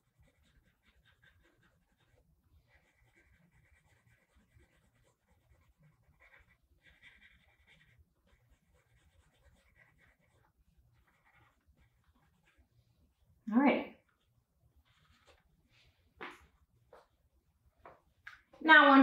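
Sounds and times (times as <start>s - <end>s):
scratchy rubbing on paper: 0.0s - 12.8s, 14.8s - 15.6s.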